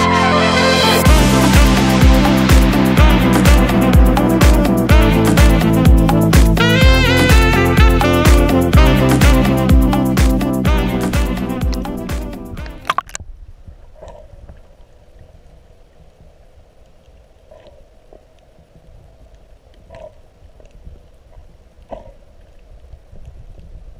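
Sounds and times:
background music: 0.0 - 13.0
bursts of water noise: 1.0 - 23.9
muffled underwater water rumble: 1.0 - 23.9
clicks underwater: 12.6 - 14.7.

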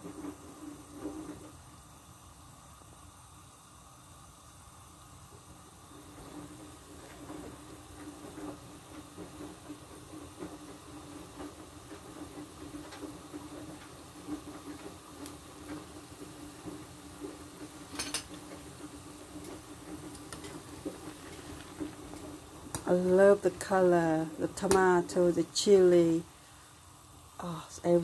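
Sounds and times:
soup bubbling and popping: 13.7 - 22.9.

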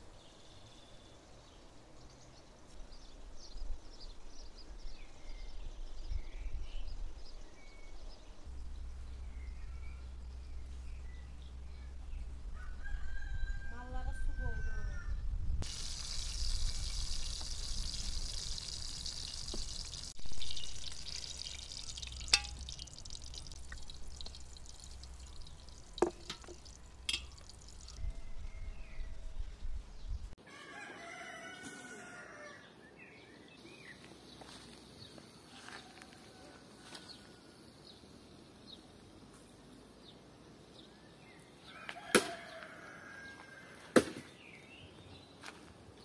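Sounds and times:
birds chirping: 0.3 - 30.3
wind rumbling on microphone: 3.5 - 30.3
rooster crowing: 12.4 - 15.3, 27.8 - 29.4, 30.4 - 32.7, 35.5 - 37.6, 41.7 - 43.9
metal pans clinking: 22.0 - 22.8, 26.0 - 27.7.

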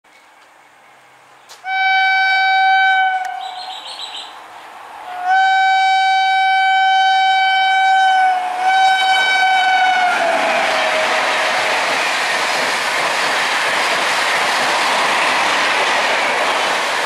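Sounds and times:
locomotive horn blasts: 1.6 - 3.8, 5.1 - 11.0.

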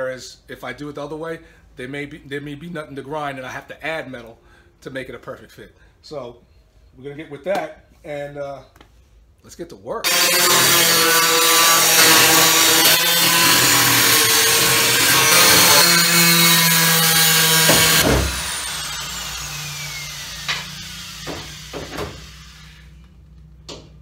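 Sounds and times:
angle grinder cutting steel: 10.0 - 22.9
grinder spinning down: 10.1 - 23.0.

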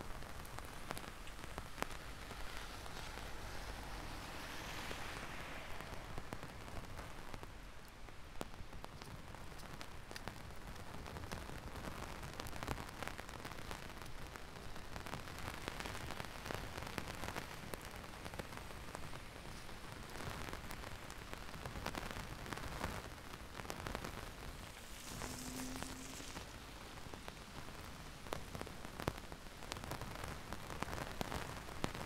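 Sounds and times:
heavy rain: 0.0 - 32.0
low hum: 24.9 - 27.2.

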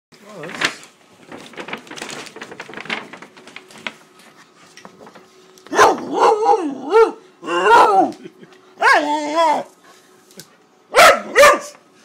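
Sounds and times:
paper bag crinkling: 0.2 - 6.1
puppy barking: 5.7 - 8.1, 10.9 - 11.8.

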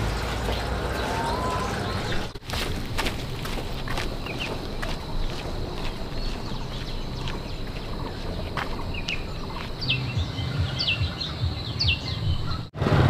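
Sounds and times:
small bird chirping: 4.2 - 12.8.

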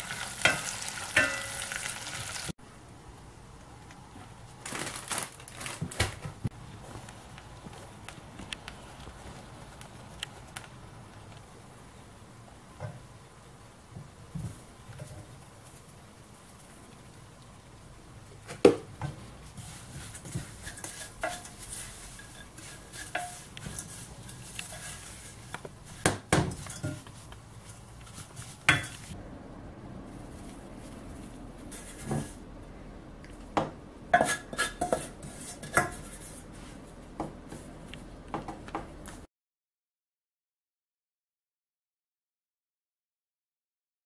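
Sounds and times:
wooden spoon scraping a pot: 19.2 - 29.2, 31.7 - 32.4, 34.2 - 36.7.

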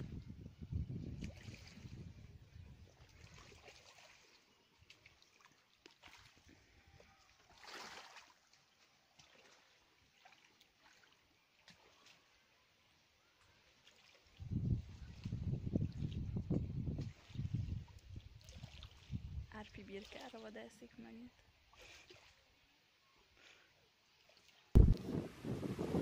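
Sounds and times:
small waves lapping on stony shore: 3.0 - 6.6, 7.3 - 12.2.

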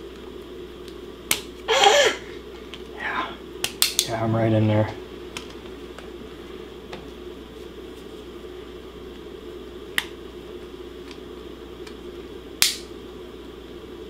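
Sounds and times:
steady low hum: 0.0 - 14.0
plastic snapping: 0.8 - 1.5, 3.6 - 4.1, 12.6 - 12.9.

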